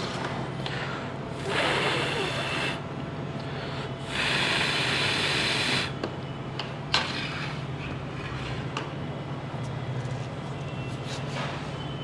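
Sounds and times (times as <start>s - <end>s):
steady air hiss: 0.7s - 2.9s, 3.5s - 6.0s.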